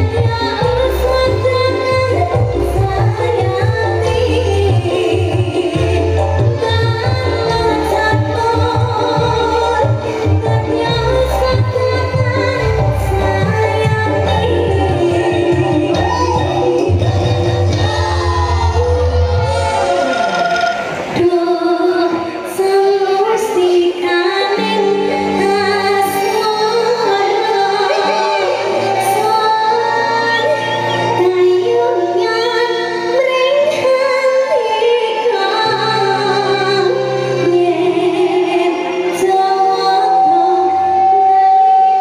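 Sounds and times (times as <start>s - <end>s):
woman singing: 0.0s - 19.6s, 21.2s - 42.0s
gamelan and band ensemble: 0.0s - 21.1s.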